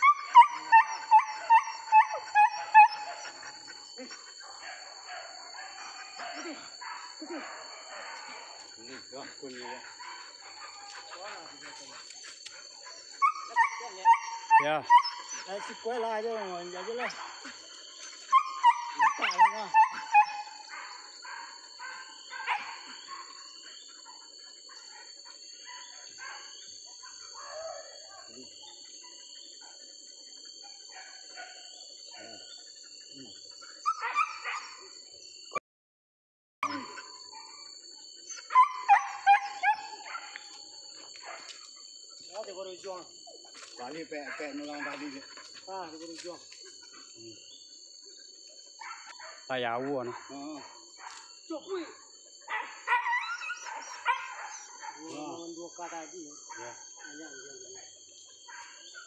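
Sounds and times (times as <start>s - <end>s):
dog yelping: 0.0s - 8.7s, 12.8s - 32.7s, 33.6s - 34.8s, 38.3s - 40.5s, 48.8s - 49.4s, 52.4s - 55.3s.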